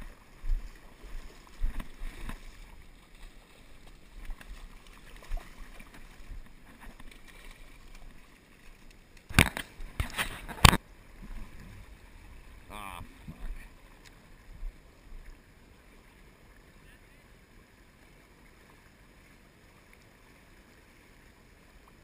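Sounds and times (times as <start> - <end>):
river water washing: 0.0 - 22.0
fish thrashing and splashing: 0.8 - 10.8.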